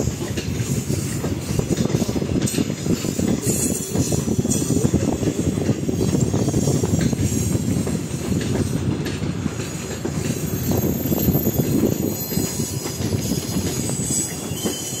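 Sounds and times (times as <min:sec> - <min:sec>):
train wheels rumbling on rails: 0:00.0 - 0:15.0
wheels clicking over rail joints: 0:00.0 - 0:15.0
high wheel squeal: 0:10.3 - 0:15.0.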